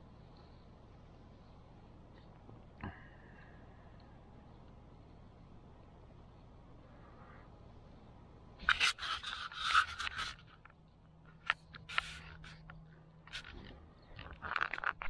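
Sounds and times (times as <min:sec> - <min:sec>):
handling scraping and rustling: 0:08.6 - 0:15.0.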